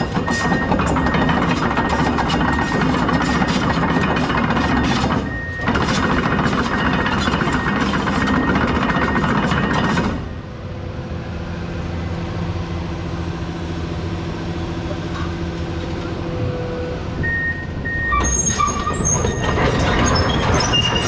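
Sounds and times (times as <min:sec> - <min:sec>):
excavator tracks clanking: 0:00.0 - 0:10.3, 0:17.2 - 0:21.0
diesel engine running: 0:00.0 - 0:21.0.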